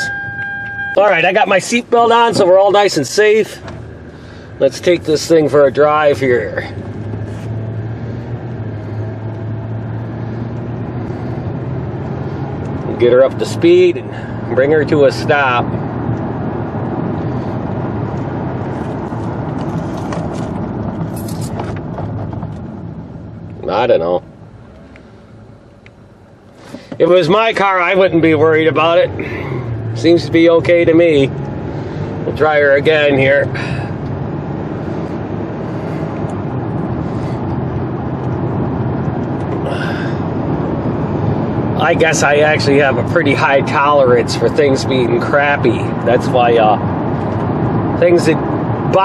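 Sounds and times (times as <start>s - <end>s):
car road and engine noise: 0.0s - 49.0s.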